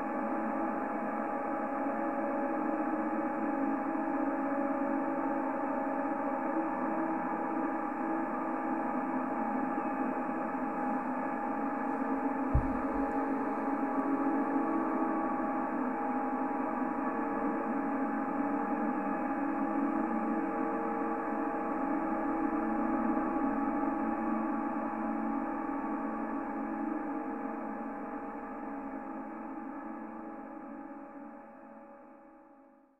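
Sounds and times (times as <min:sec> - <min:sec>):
low thump: 0:12.6 - 0:13.3.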